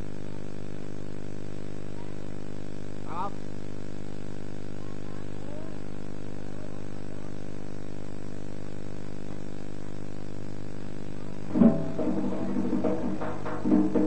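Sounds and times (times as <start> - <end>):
electrical mains hum: 0.0 - 14.0
music: 11.5 - 14.0.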